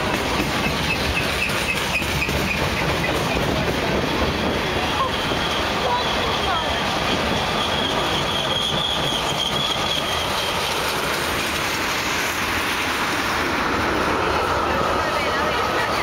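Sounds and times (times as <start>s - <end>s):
steel wheels rumbling on rail: 0.0s - 16.0s
lower wheel squeal: 0.6s - 3.5s, 4.1s - 11.6s
high wheel squeal: 0.6s - 11.6s.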